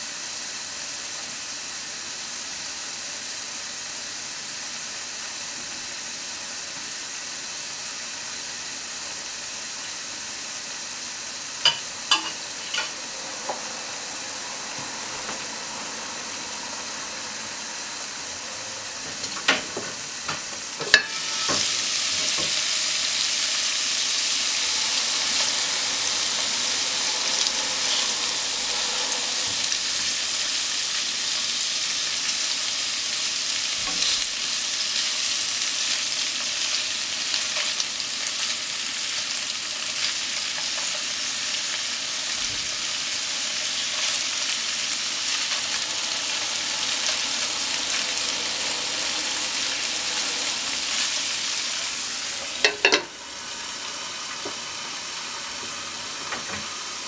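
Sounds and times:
food sizzling in a frying pan: 0.0 - 57.0
glass lid clattering: 52.6 - 53.1.

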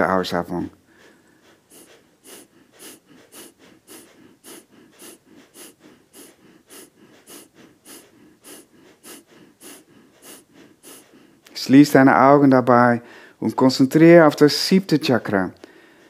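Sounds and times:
fast forceful nose breathing: 0.8 - 12.2.

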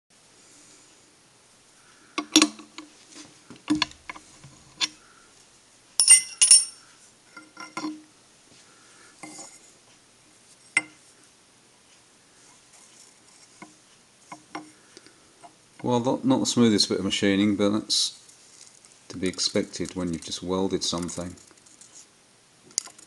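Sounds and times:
metal clinks and knocks: 2.2 - 2.9, 3.7 - 5.0, 6.0 - 8.1.

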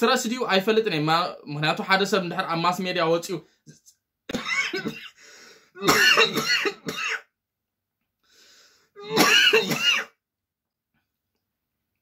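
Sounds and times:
man clearing throat: 4.3 - 5.2, 5.8 - 7.3, 9.0 - 10.2
man coughing: 4.3 - 5.2, 5.8 - 7.3, 9.0 - 10.2.

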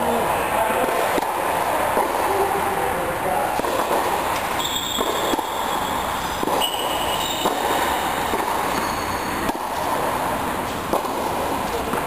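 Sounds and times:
steady background hum: 0.0 - 12.0
tennis ball strikes: 3.5 - 10.1, 10.7 - 12.0
shoes squeaking on court: 4.5 - 10.0.

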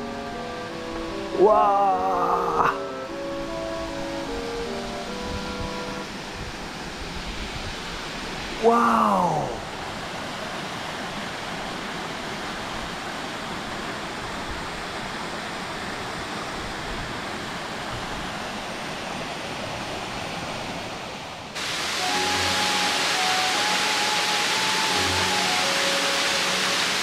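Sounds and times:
soft background music: 0.0 - 6.8, 21.8 - 27.0
waterfall rushing: 0.0 - 27.0.

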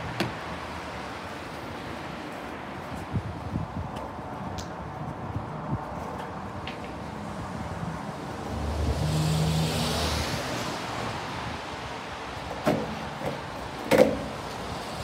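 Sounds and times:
skateboard clacking: 12.5 - 14.6.

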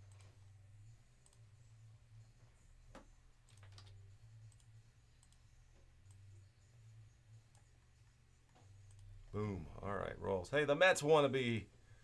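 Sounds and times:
low steady hum: 0.0 - 12.0
computer mouse clicks: 1.2 - 1.5, 2.9 - 6.3, 7.4 - 7.8, 8.5 - 9.2.

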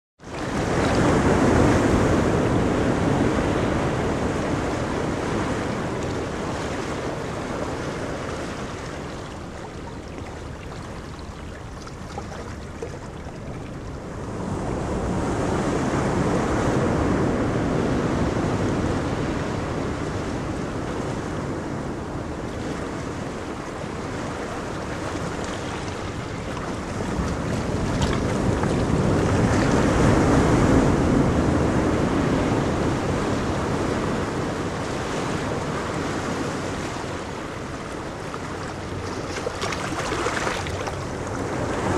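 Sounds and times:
ocean surf breaking: 0.2 - 41.9.

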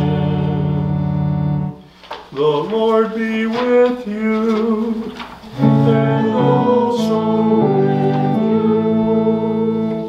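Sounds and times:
held instrumental chords: 0.0 - 2.0, 5.5 - 10.0
sung phrase with accompaniment: 0.0 - 10.0.

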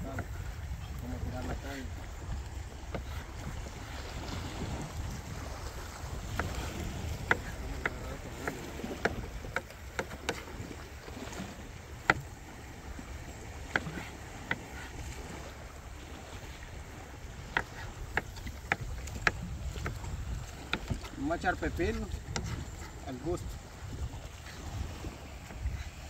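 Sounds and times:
knife chopping on wooden board: 13.7 - 14.6.

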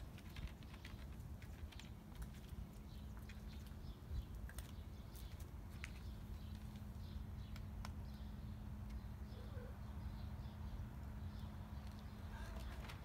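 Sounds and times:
faint bird chirps: 8.1 - 10.7.

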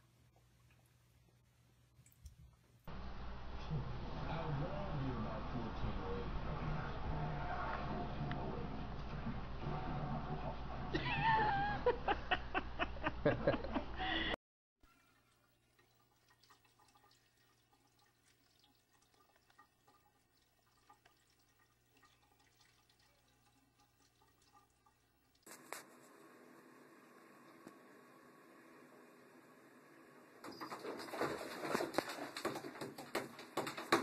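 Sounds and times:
cat lapping water: 15.1 - 25.7.

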